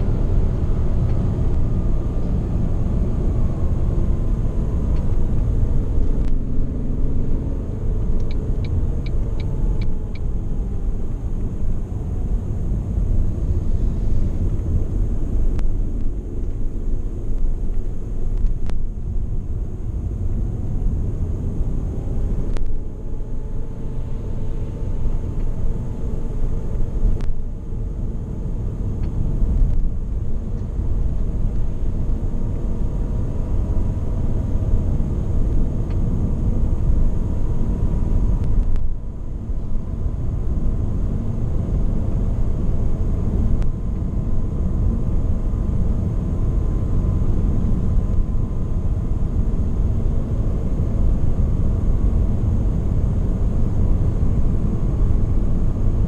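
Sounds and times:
car engine running: 0.0 - 56.0
road and tyre noise: 0.0 - 56.0
light ticks: 8.2 - 10.3, 27.2 - 27.4, 38.4 - 38.9.

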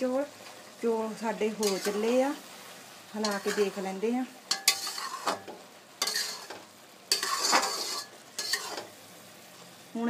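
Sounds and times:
metal spoon scraping metal pan: 1.5 - 2.3, 3.2 - 9.0.

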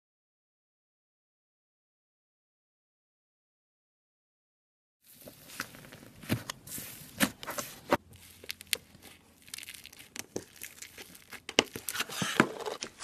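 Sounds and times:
slime crackling and popping: 5.1 - 12.1.

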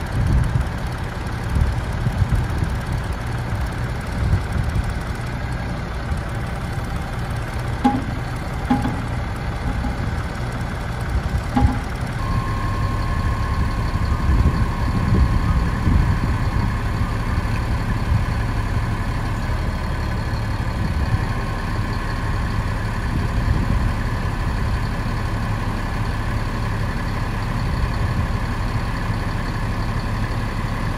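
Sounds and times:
diesel truck engine idling: 0.0 - 30.9
steady high whine: 11.5 - 18.6.

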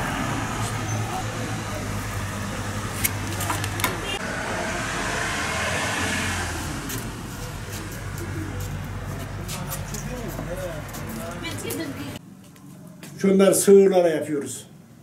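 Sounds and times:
vehicle passing: 0.0 - 12.2
low engine hum of traffic: 0.0 - 13.2.

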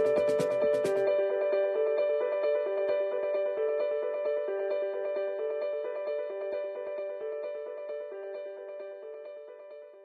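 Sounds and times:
instrumental background music: 0.0 - 1.4.

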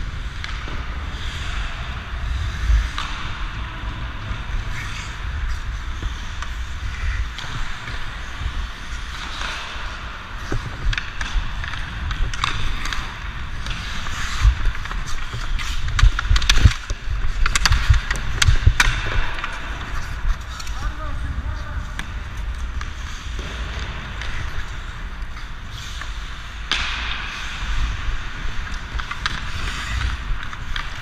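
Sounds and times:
skate blades scraping ice: 0.0 - 31.0
hockey stick clacks: 0.2 - 3.8, 4.4 - 21.0, 21.8 - 31.0.

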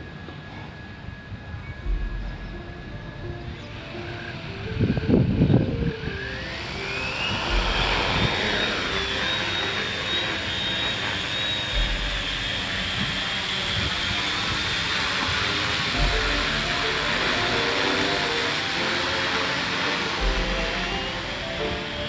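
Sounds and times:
drone motors whining: 0.0 - 22.0
loud low rumble: 1.8 - 11.0, 11.7 - 14.8, 15.8 - 18.4.

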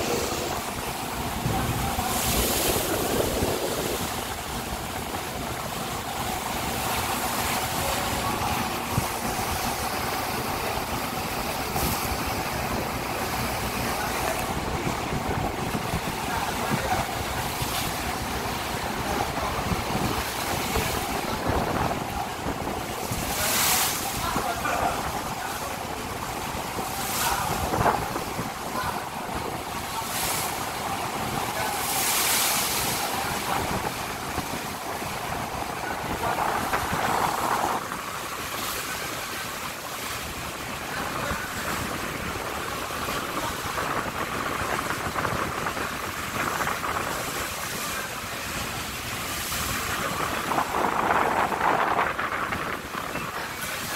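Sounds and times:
wind on microphone: 0.0 - 39.1, 40.7 - 53.9
water splashing against steel hull: 0.0 - 53.9.

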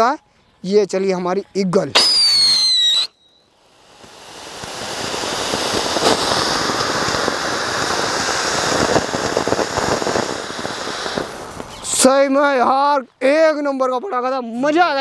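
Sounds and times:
firework fountain rushing hiss: 2.0 - 12.4
firework crackling: 2.0 - 12.6.

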